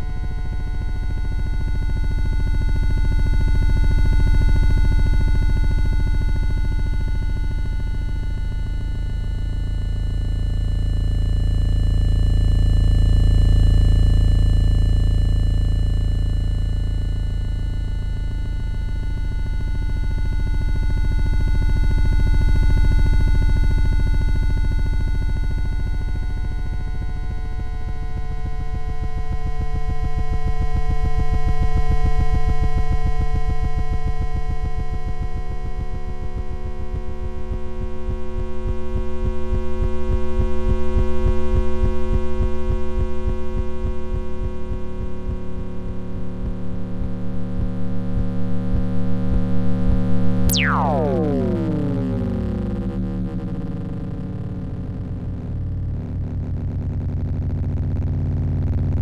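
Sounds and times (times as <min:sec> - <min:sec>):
electronic sine tone drone: 0:00.0 - 0:59.0
deep pulsing throb: 0:50.5 - 0:57.7.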